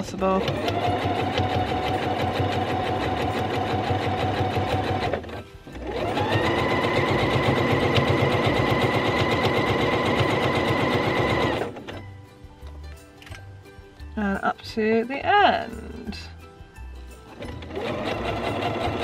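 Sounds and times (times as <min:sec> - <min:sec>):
sewing machine stitching: 0:00.3 - 0:12.0, 0:17.3 - 0:19.0.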